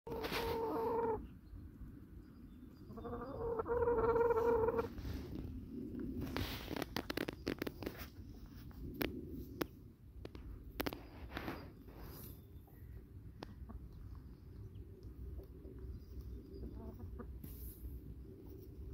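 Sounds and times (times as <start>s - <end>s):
chicken calling: 0.1s - 1.3s, 2.9s - 4.9s.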